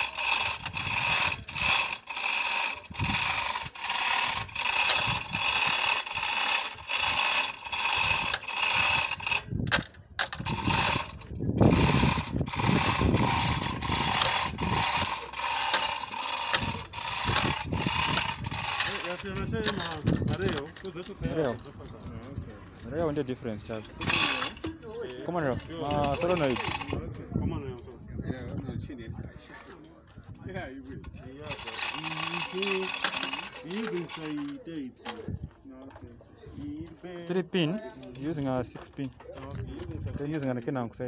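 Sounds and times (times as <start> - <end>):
chain hoist ratcheting clatter: 0.0 - 27.9, 30.7 - 36.1, 37.8 - 40.6.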